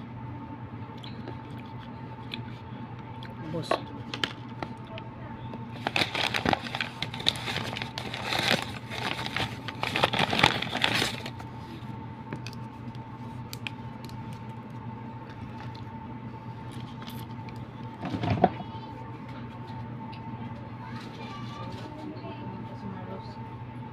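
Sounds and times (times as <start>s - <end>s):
faint steady hum: 0.0s - 23.9s
plastic packaging crinkling: 5.7s - 11.5s.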